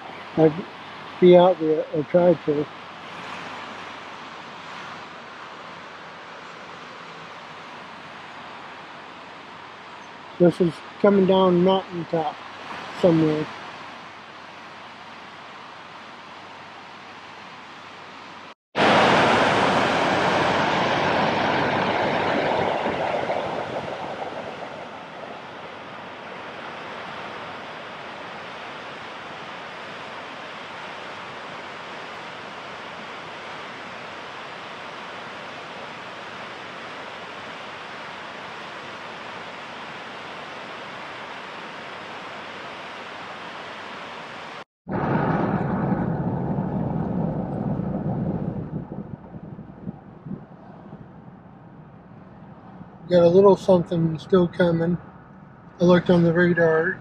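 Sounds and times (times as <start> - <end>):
creek water rushing: 0.0 - 44.6.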